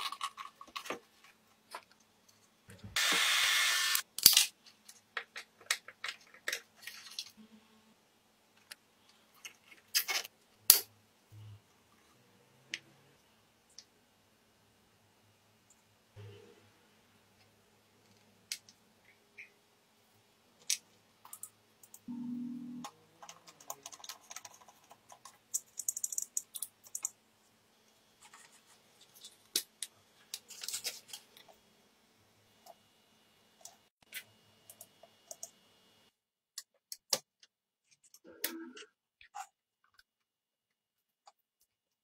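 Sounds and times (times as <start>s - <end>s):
parts clicking and rattling: 23.2s - 27.2s.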